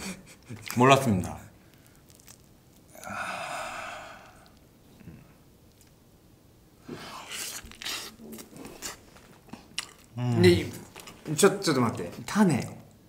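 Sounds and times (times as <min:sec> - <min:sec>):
person biting and chewing avocado: 0:01.8 - 0:03.0, 0:07.1 - 0:11.2.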